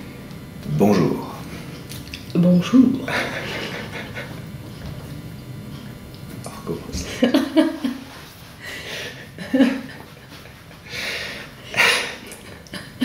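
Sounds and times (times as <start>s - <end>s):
man and woman laughing: 3.1s - 4.6s, 7.0s - 10.9s, 11.7s - 13.0s.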